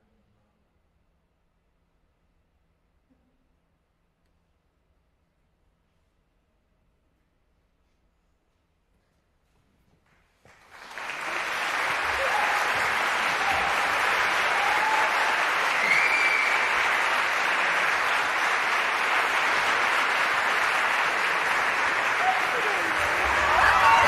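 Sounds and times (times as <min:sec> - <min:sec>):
audience applause: 0:10.5 - 0:24.0.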